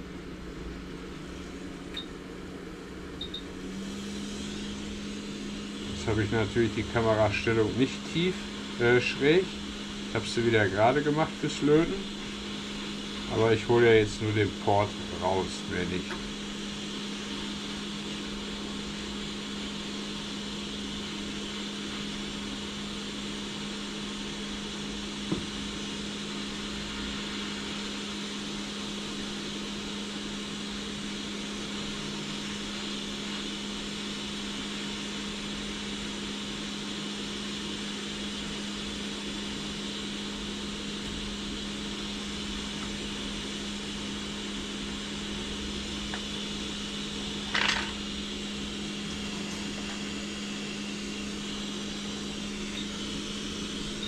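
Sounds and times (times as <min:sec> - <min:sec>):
hot-air gun blowing: 0:03.6 - 0:15.4.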